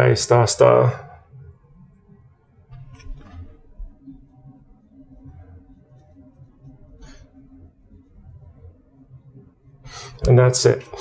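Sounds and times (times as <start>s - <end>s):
room hum: 2.8s - 11.0s.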